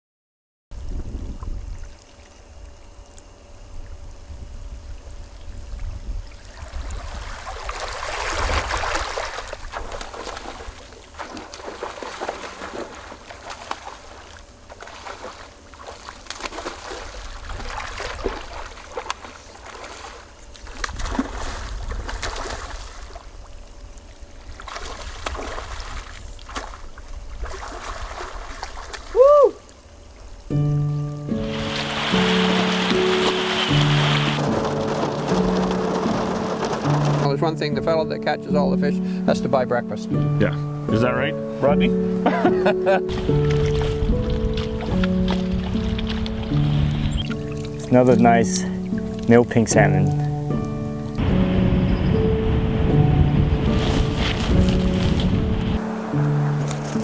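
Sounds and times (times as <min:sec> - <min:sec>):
sea water sloshing and lapping: 0:05.7 - 0:30.4, 0:31.3 - 0:37.7, 0:43.0 - 0:51.2, 0:53.5 - 0:57.0
water splashes: 0:06.2 - 0:30.4, 0:31.3 - 0:37.9, 0:43.1 - 0:51.3, 0:53.6 - 0:57.0
steady low rumble: 0:48.7 - 0:57.0.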